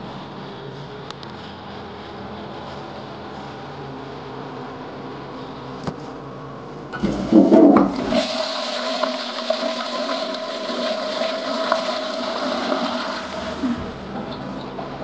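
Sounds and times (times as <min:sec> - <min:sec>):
toilet flush click: 0:07.0 - 0:15.0
toilet water gushing: 0:07.0 - 0:15.0.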